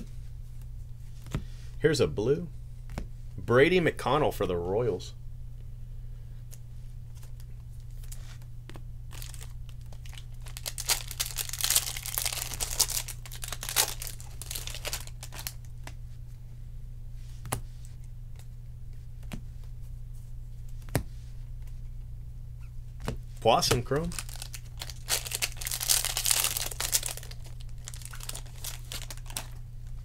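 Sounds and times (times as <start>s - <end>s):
foil wrapper tearing and crinkling: 9.1s - 15.6s, 23.7s - 29.6s.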